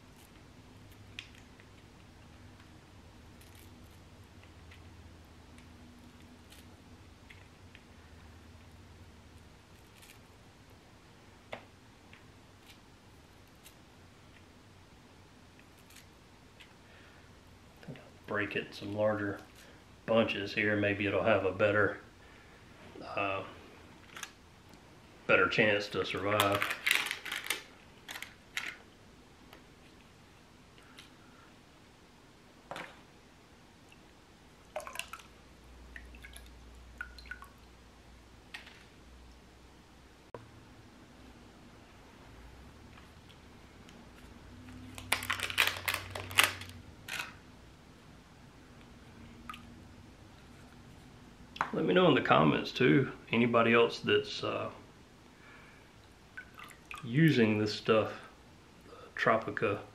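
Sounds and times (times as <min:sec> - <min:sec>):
water dripping into bowl: 0:34.7 - 0:35.3, 0:35.9 - 0:37.7, 0:56.3 - 0:57.1
hands splashing in water: 0:34.8 - 0:35.3.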